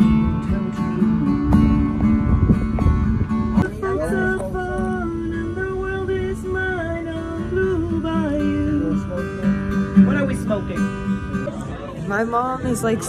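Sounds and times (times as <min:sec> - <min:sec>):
acoustic guitars strumming: 0:00.0 - 0:13.0
woman singing: 0:00.2 - 0:02.5, 0:03.6 - 0:09.2.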